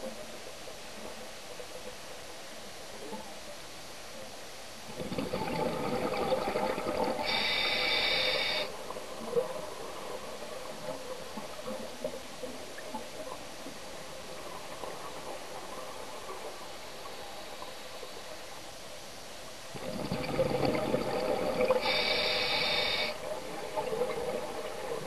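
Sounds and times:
faint underwater hiss: 0:00.0 - 0:25.0
air bubbles gurgling underwater: 0:04.9 - 0:07.7, 0:19.7 - 0:25.0.

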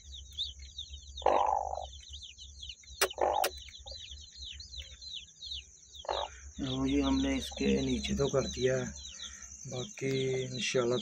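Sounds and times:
chick peeping: 0:00.0 - 0:11.0
sharp clicks: 0:02.9 - 0:03.8.

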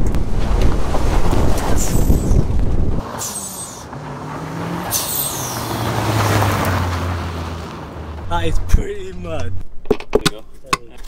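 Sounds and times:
car engine driving past: 0:03.0 - 0:08.7
short high hisses: 0:03.2 - 0:03.9, 0:04.9 - 0:05.8.

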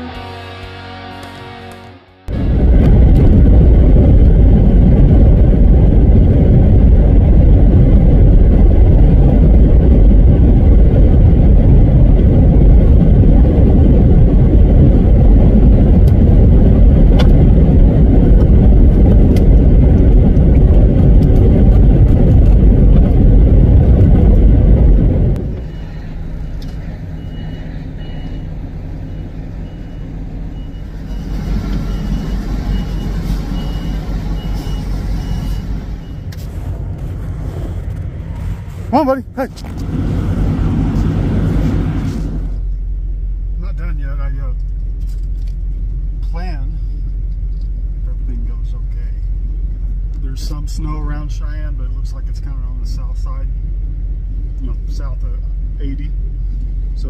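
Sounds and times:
road and wind noise: 0:00.0 - 0:57.0
truck driving rumble: 0:00.0 - 0:57.0
truck idling: 0:22.8 - 0:43.6
reversing alarm beeping: 0:25.6 - 0:26.3, 0:27.1 - 0:36.3.

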